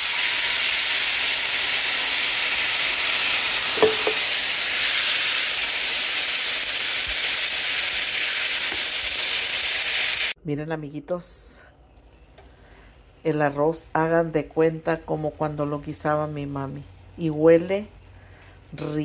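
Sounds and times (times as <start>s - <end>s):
sauce sizzling in frying pan: 0.0s - 10.4s.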